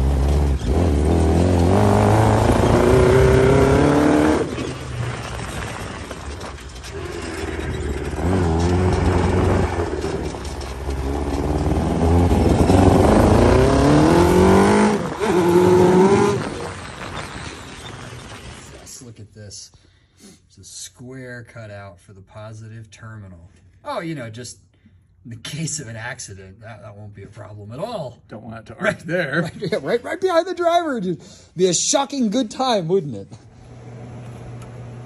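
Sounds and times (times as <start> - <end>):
motorcycle engine accelerating hard: 0.0 - 5.6, 6.9 - 17.2.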